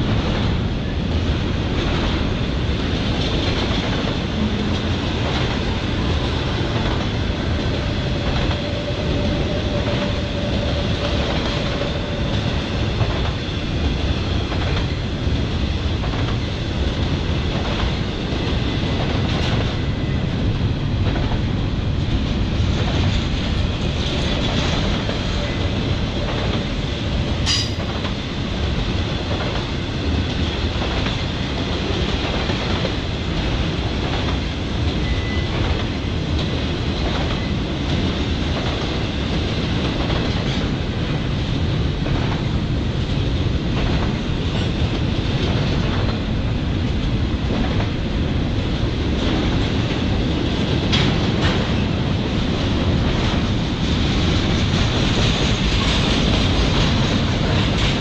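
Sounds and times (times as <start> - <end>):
freight train rolling past: 0.0 - 58.0.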